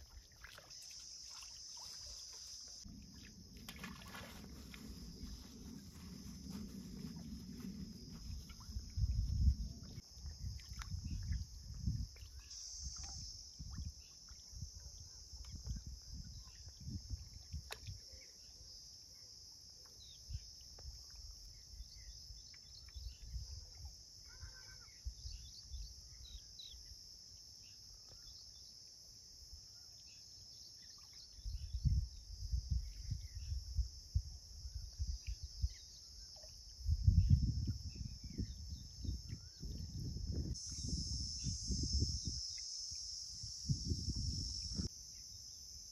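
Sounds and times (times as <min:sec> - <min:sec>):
high insect drone: 0:00.0 - 0:45.9
wind buffeting microphone: 0:04.1 - 0:12.2, 0:36.8 - 0:42.4, 0:43.6 - 0:44.9.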